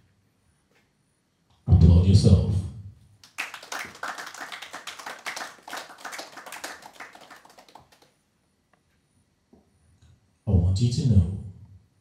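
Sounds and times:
small group clapping: 3.2 - 8.2.

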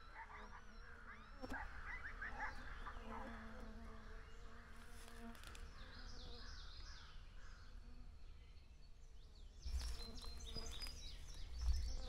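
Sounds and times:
birds chirping: 0.0 - 4.6, 8.5 - 12.0
wind rumble on microphone: 9.6 - 12.0.

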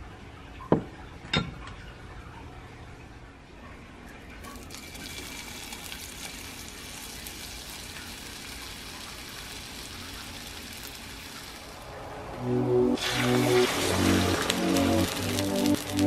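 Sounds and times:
onion sizzling in oil: 4.5 - 16.0.

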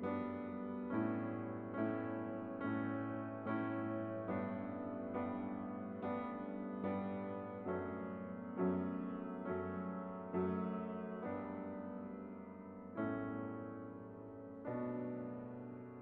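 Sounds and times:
gentle piano chords: 0.0 - 16.0.

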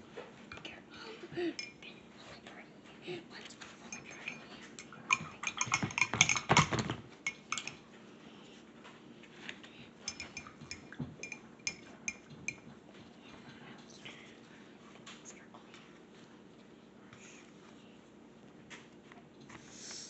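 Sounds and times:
paintbrushes clinking against mugs: 1.5 - 1.8, 3.6 - 7.8, 10.0 - 12.7.

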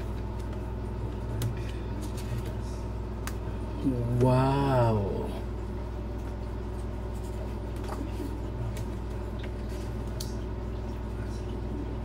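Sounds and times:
booklet pages rustling: 0.0 - 2.8
low room hum: 0.0 - 12.0.

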